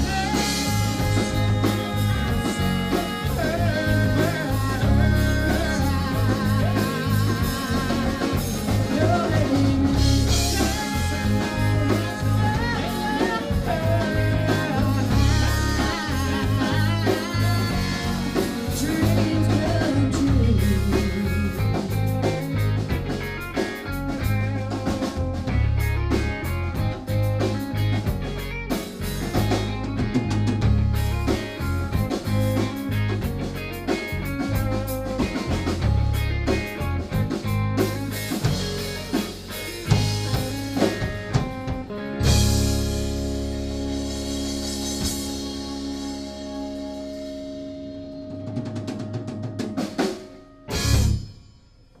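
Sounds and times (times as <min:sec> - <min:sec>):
woman singing: 0:00.0 - 0:22.2
drum kit beat: 0:00.0 - 0:52.0
electric guitar: 0:00.0 - 0:52.0
keyboard: 0:00.0 - 0:52.0.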